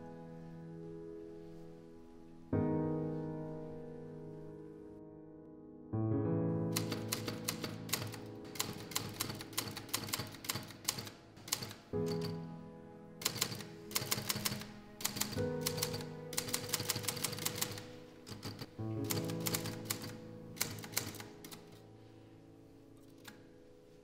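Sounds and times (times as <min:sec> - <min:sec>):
soft sustained music chords: 0:00.0 - 0:24.0
typewriter keys clacking: 0:06.8 - 0:12.4, 0:13.2 - 0:21.8.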